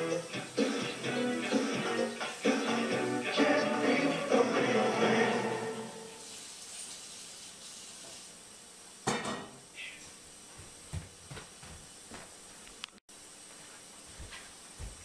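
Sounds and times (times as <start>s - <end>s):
videotape hiss: 0.0s - 9.0s.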